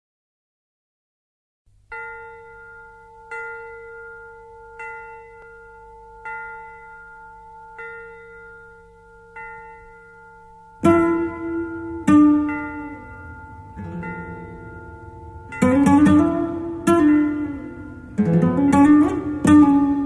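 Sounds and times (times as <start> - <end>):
guitar chords plucked: 10.4 - 20.0.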